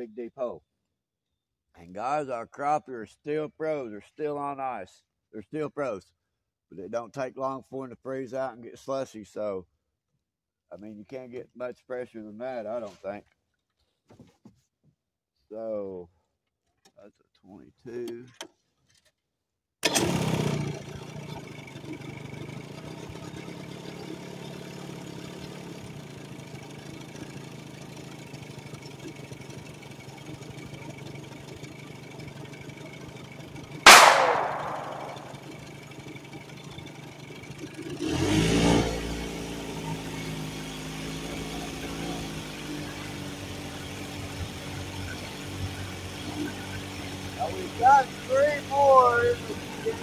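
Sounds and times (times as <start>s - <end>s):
boat motor idling: 21.4s - 33.8s, 39.7s - 50.0s
loud impact: 33.9s - 35.5s.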